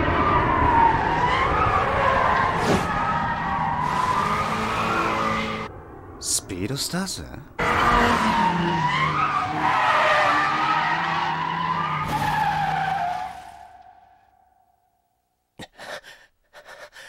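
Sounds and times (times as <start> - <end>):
car tyres screeching: 0.0 - 5.7, 7.6 - 14.4
car engine: 0.0 - 6.4, 7.4 - 14.9
man gasping and breathing hard: 15.6 - 17.0.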